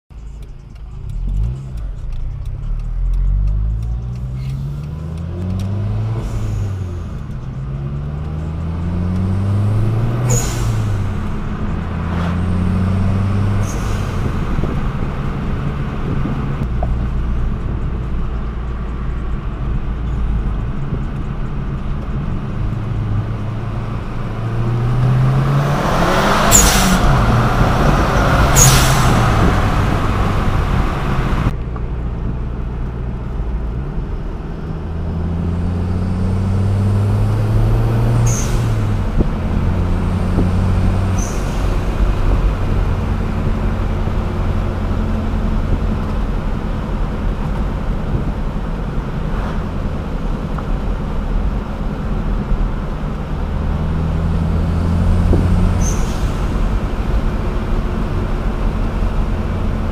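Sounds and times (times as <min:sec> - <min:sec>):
car engine revving: 0:00.2 - 0:31.6, 0:32.6 - 0:59.9
short sharp hisses: 0:10.3 - 0:11.2, 0:26.5 - 0:27.0, 0:28.6 - 0:29.2.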